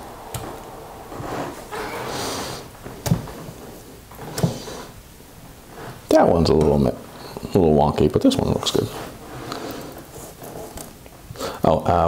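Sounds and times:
breathy sniff: 0:01.4 - 0:02.7, 0:08.9 - 0:10.4, 0:11.4 - 0:11.6.

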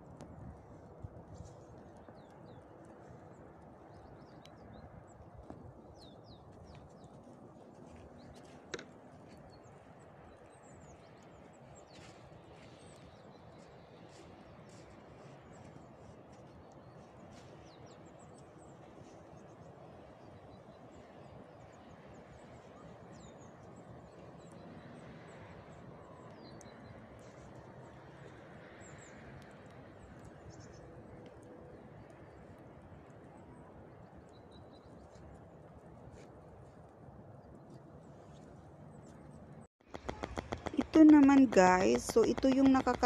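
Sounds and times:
low rumble of wind or traffic: 0:00.0 - 0:43.0
small birds chirping: 0:39.9 - 0:43.0.

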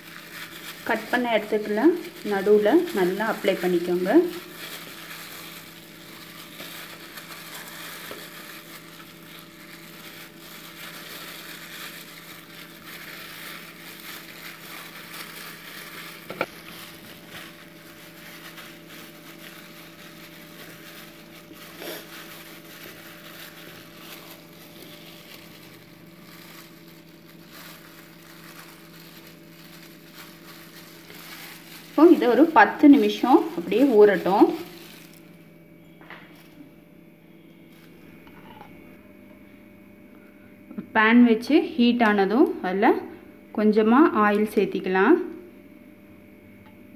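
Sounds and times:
wet squishing and rubbing: 0:00.0 - 0:35.4
faint steady hum: 0:00.0 - 0:46.9.

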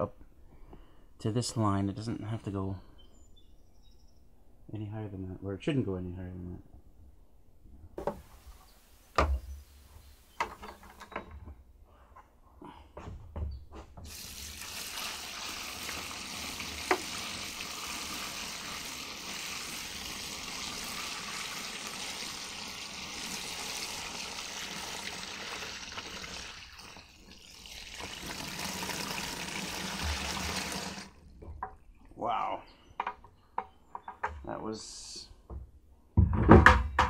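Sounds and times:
water pouring into tub: 0:14.1 - 0:31.2.

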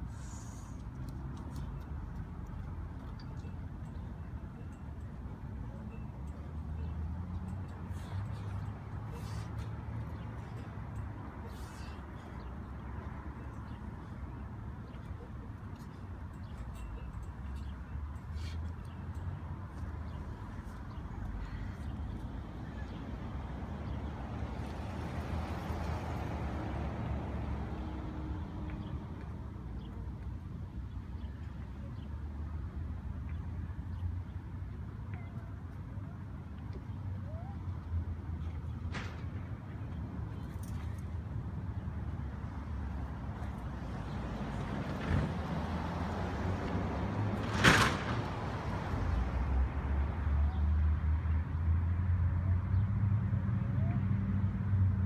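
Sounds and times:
road traffic rumble: 0:00.0 - 0:55.0
vehicle passing: 0:19.6 - 0:29.5, 0:41.8 - 0:55.0.

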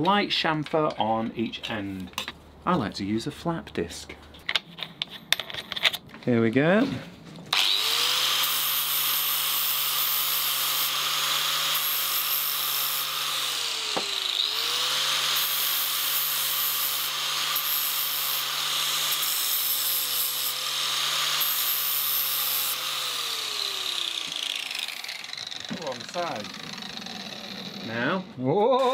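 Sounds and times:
angle grinder grinding steel: 0:07.5 - 0:28.9.

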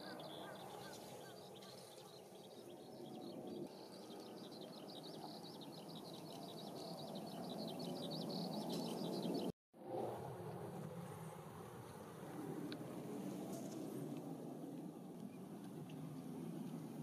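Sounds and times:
small birds twittering: 0:00.0 - 0:09.5
low outdoor background noise: 0:00.0 - 0:17.0.

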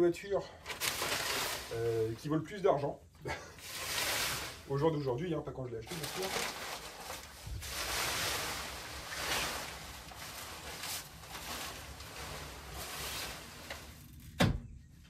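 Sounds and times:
car cover rustling and swishing: 0:05.9 - 0:14.3.

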